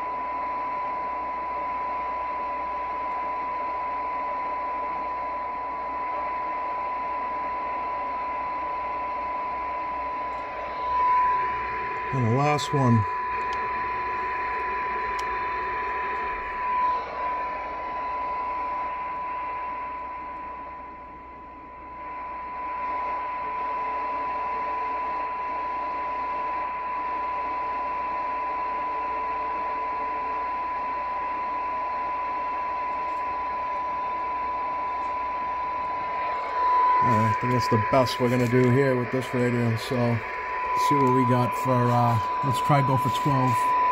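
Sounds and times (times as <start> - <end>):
steady test tone: 9.8 - 23.2, 32.6 - 43.9
radio receiver hiss: 34.8 - 43.9.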